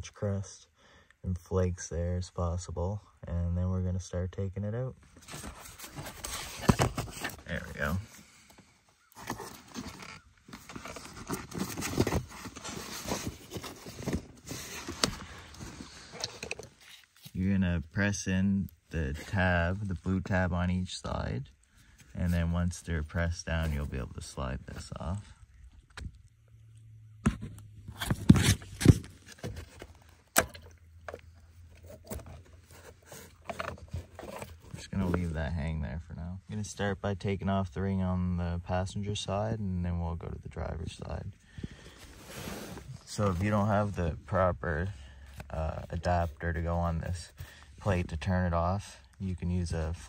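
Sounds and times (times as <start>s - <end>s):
hands handling plastic parts: 5.2s - 17.4s, 27.2s - 35.2s.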